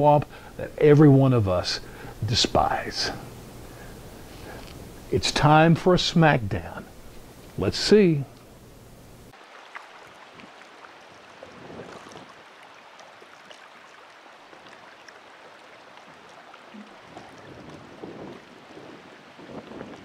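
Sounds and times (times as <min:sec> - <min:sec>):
water splashing and lapping: 0:09.3 - 0:20.0
wind on microphone: 0:11.3 - 0:12.4, 0:16.8 - 0:20.0.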